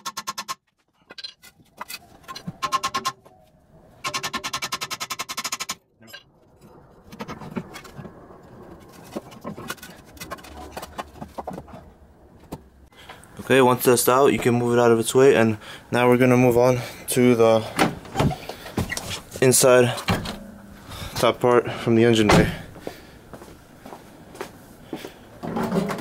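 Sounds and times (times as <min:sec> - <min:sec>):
knocks and clunks: 0:17.6 - 0:21.2, 0:22.3 - 0:22.8, 0:25.4 - 0:26.0.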